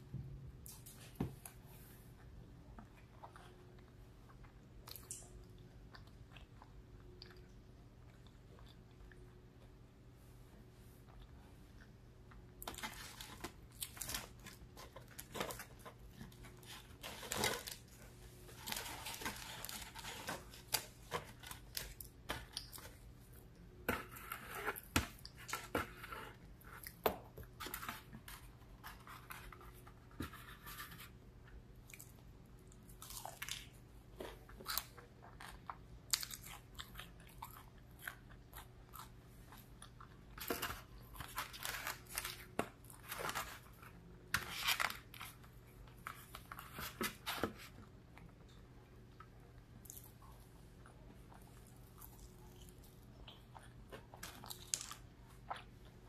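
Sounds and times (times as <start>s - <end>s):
crunchy chewing: 31.8s - 44.0s.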